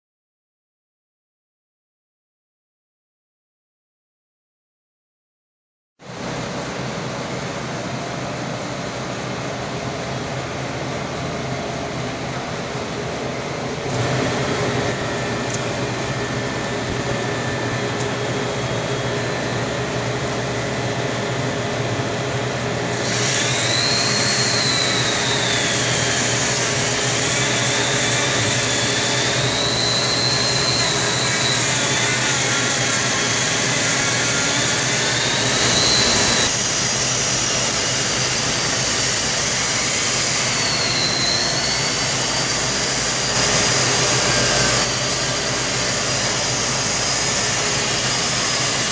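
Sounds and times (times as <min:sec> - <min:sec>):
wavering high whine: 0:06.1 - 0:48.9
die grinder motor running: 0:13.8 - 0:18.4, 0:22.5 - 0:48.9.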